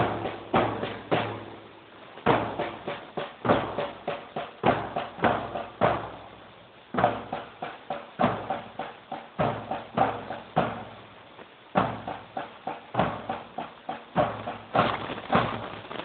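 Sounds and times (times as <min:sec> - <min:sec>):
marching band drums: 0:00.0 - 0:16.0.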